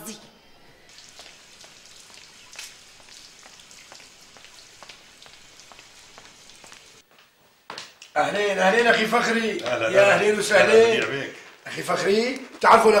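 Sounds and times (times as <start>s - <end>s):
fountain water splashing: 0.9s - 7.0s.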